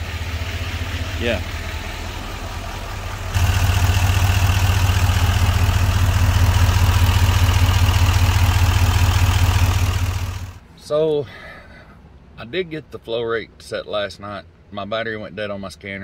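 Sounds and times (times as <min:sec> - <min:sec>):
diesel engine idling: 0:00.0 - 0:10.7.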